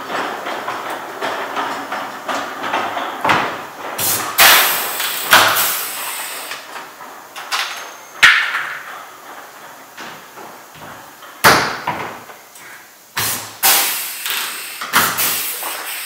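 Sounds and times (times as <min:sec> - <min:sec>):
rivet gun snapping with air hiss: 0:13.2 - 0:16.0.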